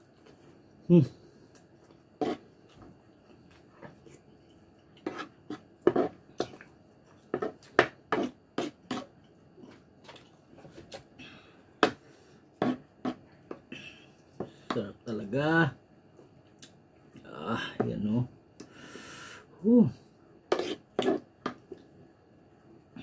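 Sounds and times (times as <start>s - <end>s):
spoon scraping wooden bowl: 2.2s - 2.5s, 5.0s - 6.5s, 7.3s - 9.1s, 12.6s - 13.2s, 20.5s - 21.6s.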